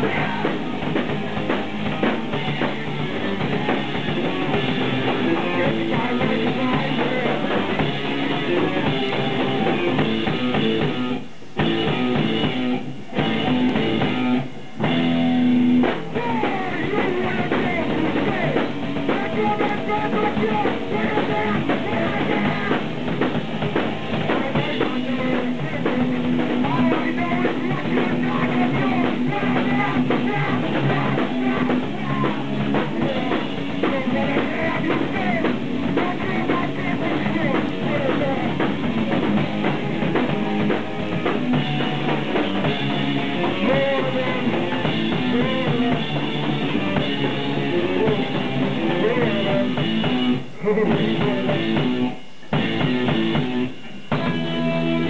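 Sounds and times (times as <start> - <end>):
bass guitar: 0.0 - 55.0
drum kit: 0.0 - 55.0
electric guitar: 0.0 - 55.0
person singing into microphone: 16.1 - 22.9, 24.3 - 38.7, 43.3 - 46.2, 47.6 - 50.0.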